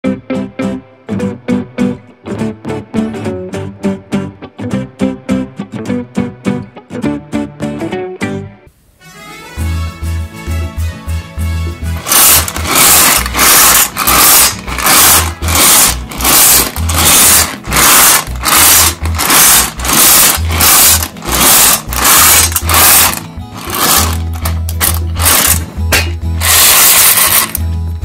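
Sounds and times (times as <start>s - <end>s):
background music: 0.0s - 28.0s
tin rasping scrapes: 12.0s - 25.7s, 26.4s - 27.6s.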